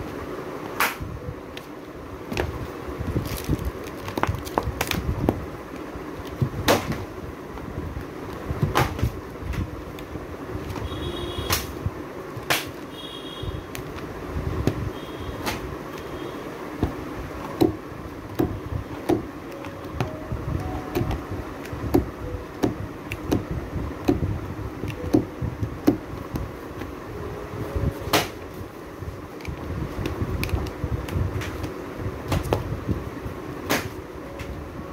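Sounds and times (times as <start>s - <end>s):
book covers and pages tapping: 2.3s - 12.9s, 13.7s - 16.2s, 16.8s - 27.0s, 28.0s - 28.6s, 29.4s - 32.8s
low handling rumble: 13.6s - 34.9s.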